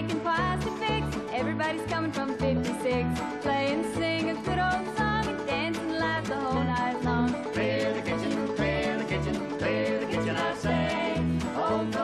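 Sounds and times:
banjo: 0.0 - 12.0
bass: 0.0 - 12.0
fiddle: 0.0 - 12.0
string band playing: 0.0 - 12.0.

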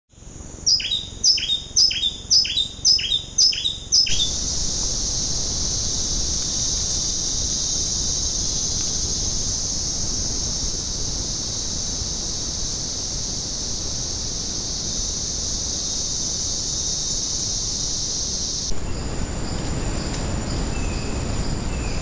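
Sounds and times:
steady high-pitched hiss: 0.1 - 22.0
bird calling sharp falling notes: 0.7 - 4.4.

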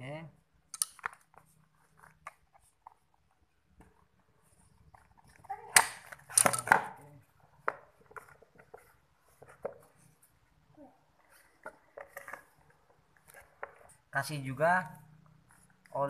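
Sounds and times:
plastic knocks and clatter on tile: 4.9 - 10.0, 11.5 - 14.0.

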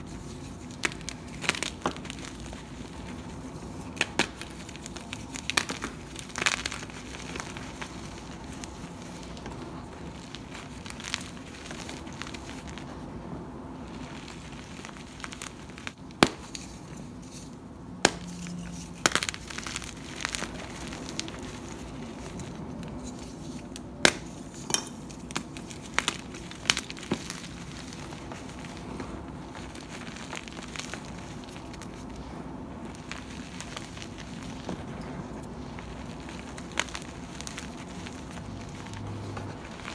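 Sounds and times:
chalk crumbling crunch: 0.0 - 13.1, 13.8 - 39.9
sharp snaps of chunks breaking: 3.9 - 8.2.

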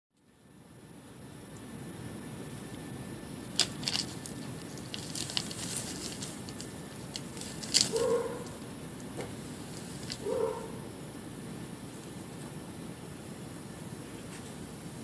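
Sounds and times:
low background rush: 0.2 - 15.0
bird scrabbling on gravel: 3.5 - 8.7, 9.3 - 10.8
wing feathers rustling: 3.6 - 8.6, 9.4 - 10.7.

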